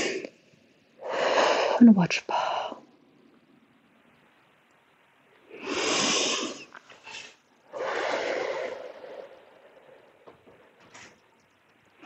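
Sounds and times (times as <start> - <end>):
person breathing deeply: 0.0 - 0.4, 1.0 - 3.0, 5.5 - 10.8.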